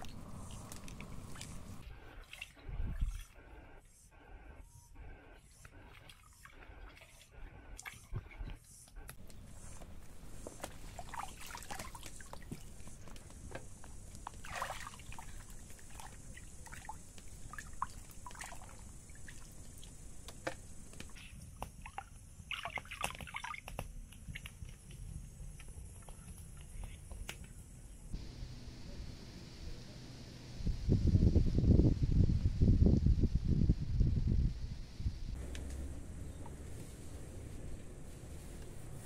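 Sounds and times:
steady high-pitched hiss: 0:09.3 - 0:22.4, 0:24.0 - 0:39.0
water splashing in plastic basin: 0:10.6 - 0:12.9, 0:14.2 - 0:19.9, 0:21.8 - 0:23.9.

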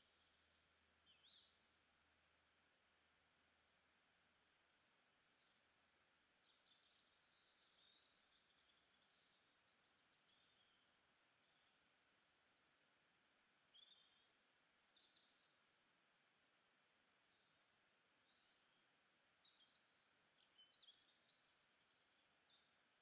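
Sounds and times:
faint steady hiss: 0:00.0 - 0:23.0
faint high bird chirps: 0:04.4 - 0:11.8, 0:12.4 - 0:23.0.

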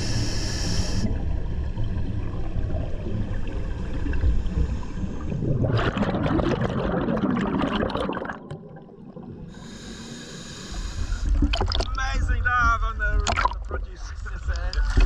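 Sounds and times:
steady hiss: 0:00.0 - 0:01.1, 0:09.6 - 0:11.3
bubbles rushing underwater: 0:01.1 - 0:09.5, 0:11.2 - 0:12.0, 0:13.2 - 0:13.7.

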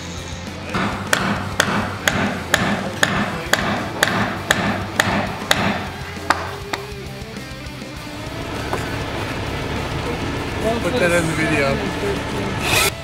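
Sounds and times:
hammer striking timber: 0:00.7 - 0:07.0.

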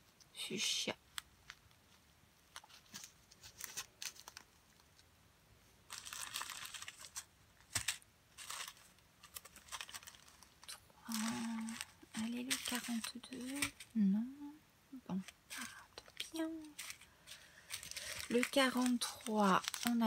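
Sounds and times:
plastic bags crinkling: 0:02.5 - 0:05.0, 0:05.9 - 0:14.0, 0:15.2 - 0:20.0.

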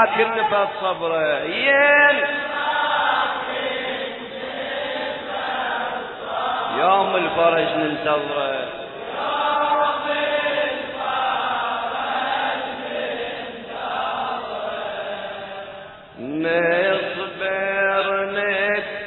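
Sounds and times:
man chanting: 0:00.0 - 0:02.6, 0:06.7 - 0:08.9, 0:16.2 - 0:19.0.

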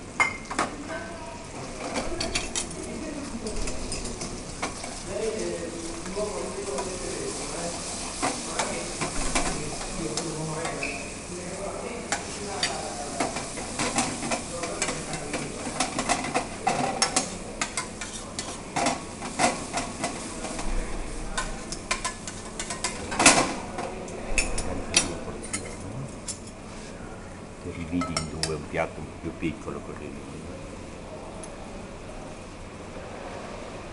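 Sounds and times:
sauce simmering and sizzling: 0:04.2 - 0:16.6
fork scraping pan: 0:17.0 - 0:18.6
cutlery clink: 0:27.9 - 0:28.6.

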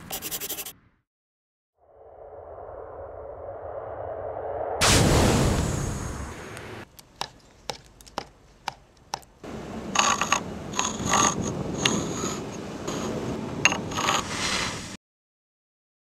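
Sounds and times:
stone tool scratching stone: 0:00.0 - 0:00.7, 0:10.0 - 0:14.4
loud rushing sound: 0:01.8 - 0:06.9
sharp taps: 0:06.9 - 0:09.4.

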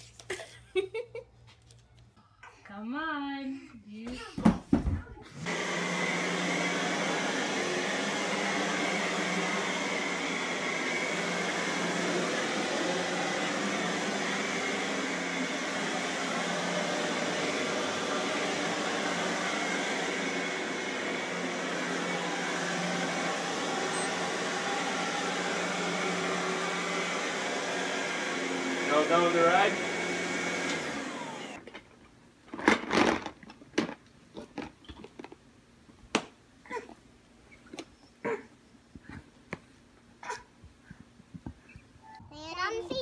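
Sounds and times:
vacuum cleaner running: 0:04.7 - 0:31.8.

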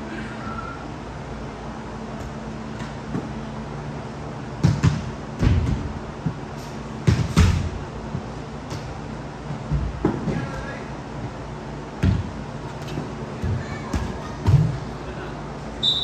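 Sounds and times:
ball struck with sharp thuds: 0:04.6 - 0:06.4, 0:07.0 - 0:07.8.

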